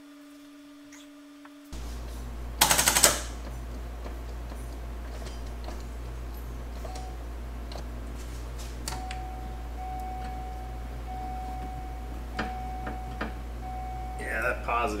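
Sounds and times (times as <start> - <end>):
constant low hum: 0.0 - 15.0
sharp clicks: 2.6 - 3.5
car warning chime tone: 4.5 - 8.0, 8.8 - 15.0.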